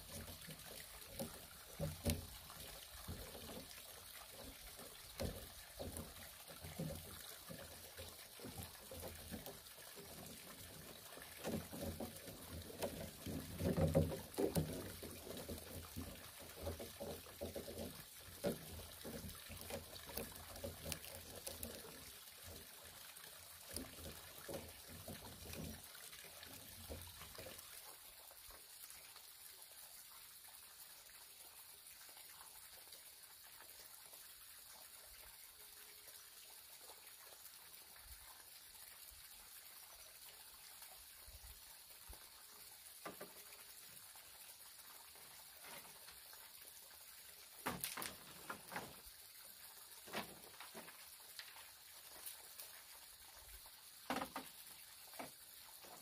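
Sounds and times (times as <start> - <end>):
bamboo poles knocking and scraping: 0.0 - 22.7, 23.6 - 27.6, 43.0 - 43.6, 47.6 - 49.0, 50.0 - 52.4, 54.0 - 56.0
faint steady hiss: 0.0 - 56.0.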